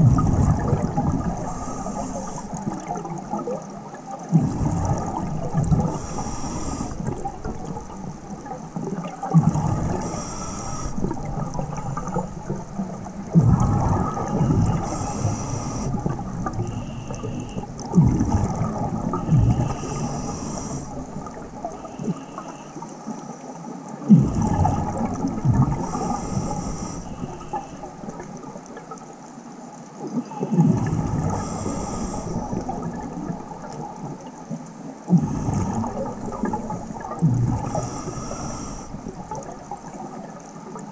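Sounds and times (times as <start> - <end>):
exhaled bubbles rushing: 0.0 - 22.7, 24.0 - 28.8, 30.5 - 34.3, 35.1 - 40.9
regulator inhale hiss: 1.4 - 2.8, 5.7 - 7.6, 9.8 - 11.2, 14.0 - 17.9, 19.2 - 23.6, 25.7 - 27.9, 31.2 - 32.7, 37.6 - 39.4.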